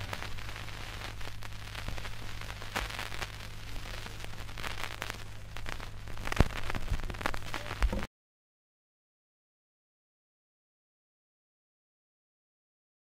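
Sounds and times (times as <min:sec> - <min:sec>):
steady low hum: 0:00.0 - 0:08.1
vinyl surface crackle and clicks: 0:00.0 - 0:08.1.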